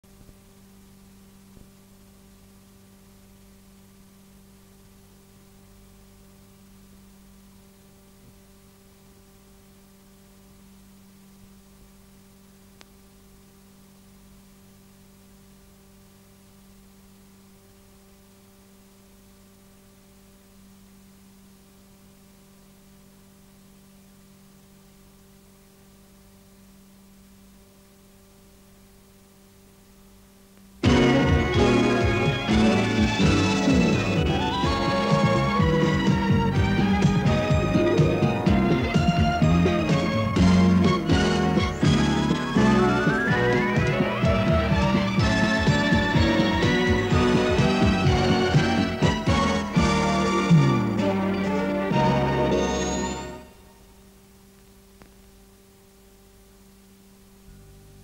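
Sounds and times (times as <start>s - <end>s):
faint electrical hum: 0.0s - 58.0s
tape hiss: 0.0s - 58.0s
faint ticks: 12.8s - 13.0s.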